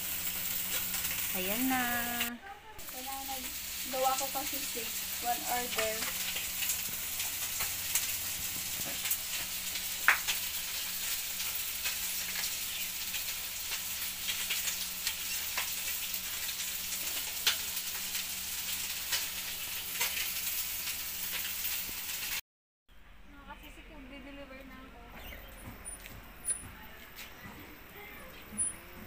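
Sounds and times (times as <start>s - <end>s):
food sizzling in oil: 0.0s - 22.4s
oil crackling and popping: 0.0s - 22.4s.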